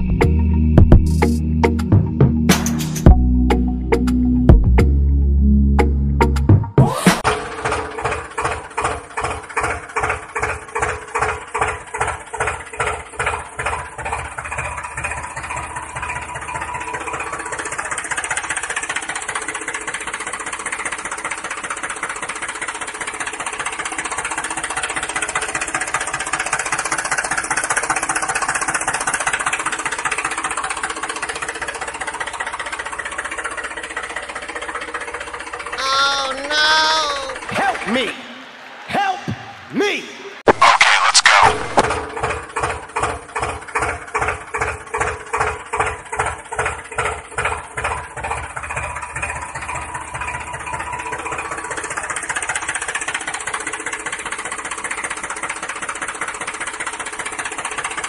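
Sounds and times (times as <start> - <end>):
tractor engine chugging: 7.2 - 38.8, 40.6 - 58.0.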